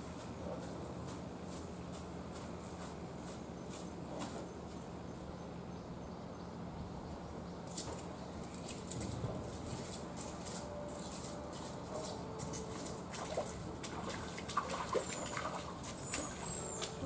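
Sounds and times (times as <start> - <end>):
animal footsteps on earth: 0.0 - 5.0, 7.7 - 17.0
steady low hum: 0.0 - 17.0.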